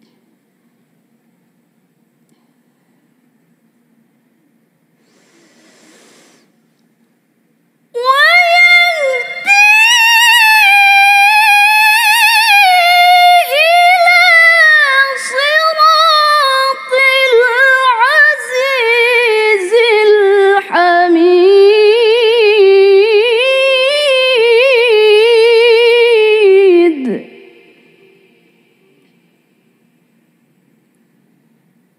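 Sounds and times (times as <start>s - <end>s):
breaths: 2.3s - 3.2s, 5.0s - 6.6s.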